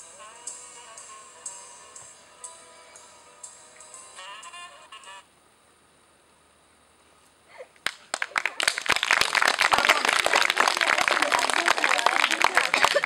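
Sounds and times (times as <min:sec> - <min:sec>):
group of people clapping: 0:07.8 - 0:13.0.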